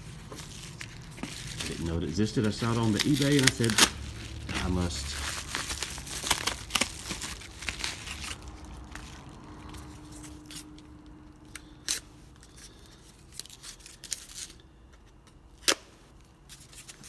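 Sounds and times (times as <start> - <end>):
paper crinkling: 0.0 - 10.8.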